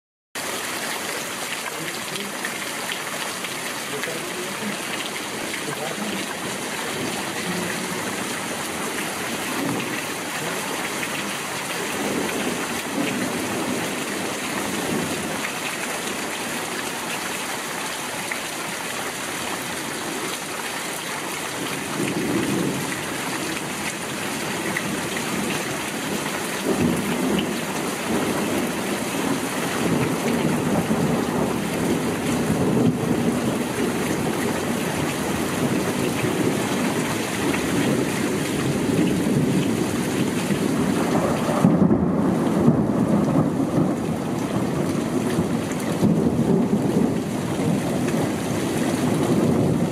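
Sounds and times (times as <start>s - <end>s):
heavy rain hissing: 0.5s - 49.9s
thunder rumbling: 35.3s - 49.9s.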